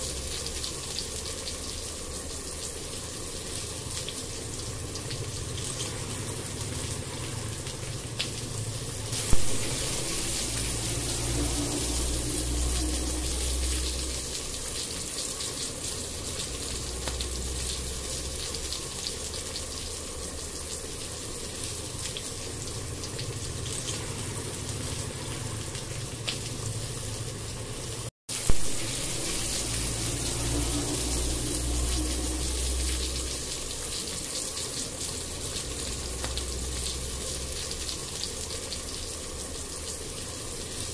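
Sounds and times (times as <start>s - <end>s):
paste sizzling in hot oil: 9.0s - 25.5s, 28.3s - 37.7s.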